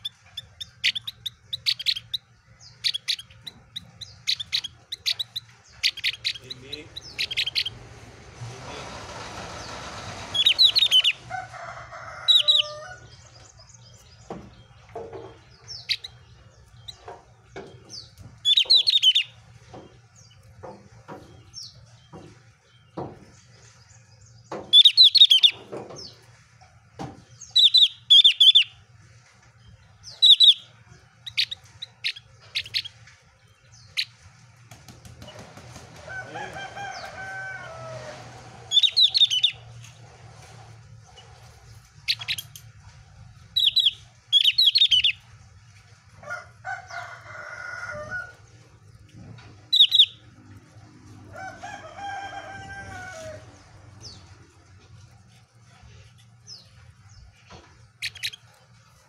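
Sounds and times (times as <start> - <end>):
songbird chirping rapidly: 0.0 - 8.1, 9.6 - 11.3, 12.3 - 20.5, 21.2 - 26.3, 27.2 - 28.9, 29.7 - 34.2, 38.7 - 39.8, 41.0 - 42.6, 43.4 - 45.4, 49.6 - 50.3, 56.5 - 58.6.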